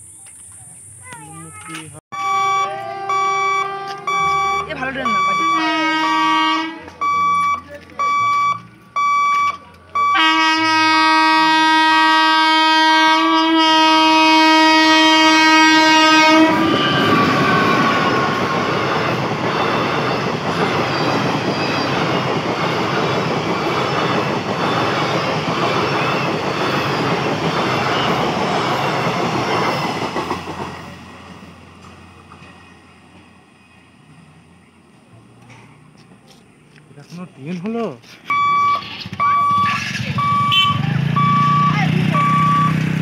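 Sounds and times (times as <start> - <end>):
train horn long blast: 2.2 - 4.8, 5.4 - 6.8, 10.2 - 18.7
train wheels clickety-clack: 16.6 - 33.3.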